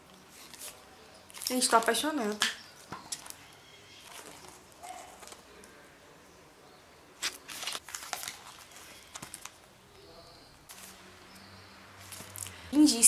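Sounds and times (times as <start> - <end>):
book pages turning: 0.1 - 5.8, 7.2 - 9.7, 10.7 - 11.4, 12.0 - 12.6.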